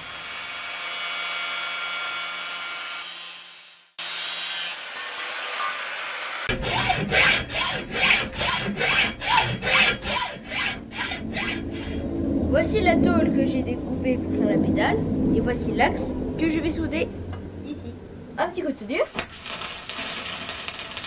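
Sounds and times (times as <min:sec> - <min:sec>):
angle grinder cutting steel: 0:00.0 - 0:12.0, 0:19.2 - 0:21.0
hacksaw sawing steel rod: 0:06.4 - 0:12.0.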